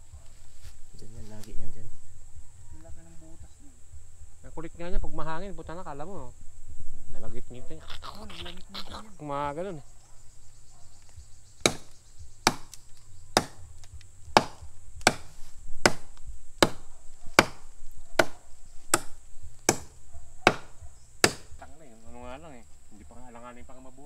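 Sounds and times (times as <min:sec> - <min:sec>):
blade chopping bamboo: 0:11.6 - 0:12.8, 0:14.4 - 0:17.6, 0:18.2 - 0:19.9, 0:20.5 - 0:21.5.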